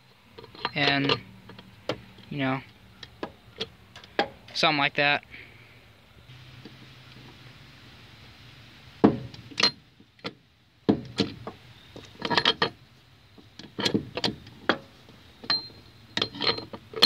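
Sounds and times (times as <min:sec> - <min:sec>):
metal gears clinking: 0:15.4 - 0:17.0.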